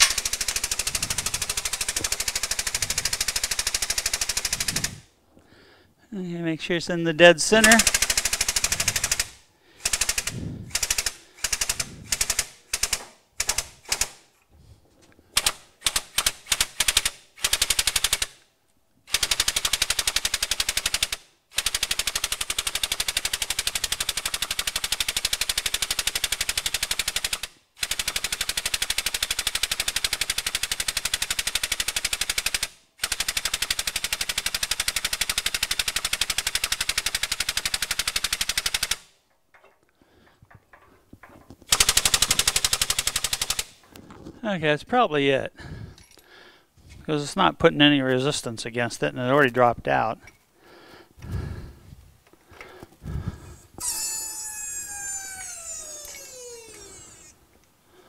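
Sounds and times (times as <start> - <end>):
hydraulic pump chattering: 53.8 - 57.4.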